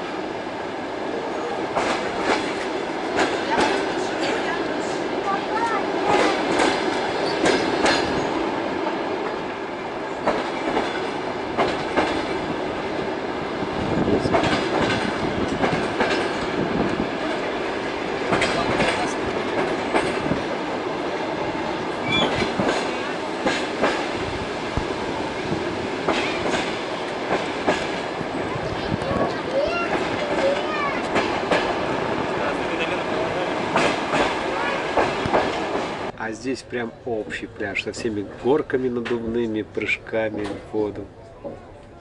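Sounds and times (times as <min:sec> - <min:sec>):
train carriage rumble: 0:00.0 - 0:42.0
wheels clacking over rail joints: 0:01.7 - 0:09.5, 0:10.1 - 0:13.1, 0:13.9 - 0:32.7, 0:33.5 - 0:36.2.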